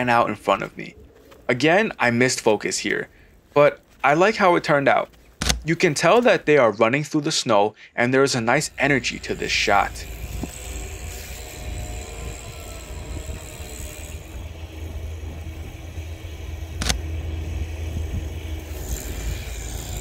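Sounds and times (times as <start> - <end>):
faint hum: 7.7 - 20.0
tractor engine rumbling: 8.0 - 20.0
camera shutter click: 16.8 - 17.0.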